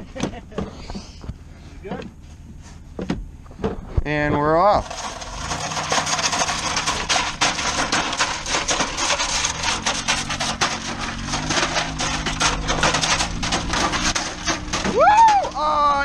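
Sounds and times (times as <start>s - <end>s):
tyres crunching on gravel: 0.0s - 16.0s
van engine running low: 0.0s - 16.0s
metal dragged over gravel: 4.5s - 16.0s.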